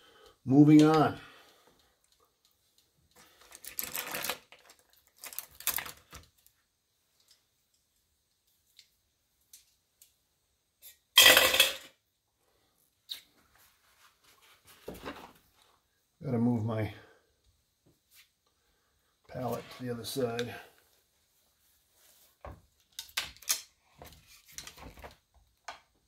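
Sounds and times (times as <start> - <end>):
objects clattering on a surface: 11.2 - 12.0.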